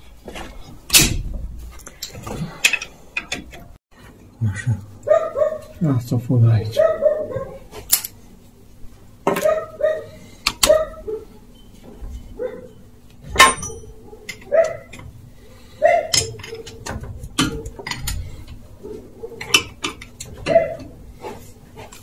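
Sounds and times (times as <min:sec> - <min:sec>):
hand tools clinking on metal: 0:13.4 - 0:15.0, 0:15.9 - 0:18.4.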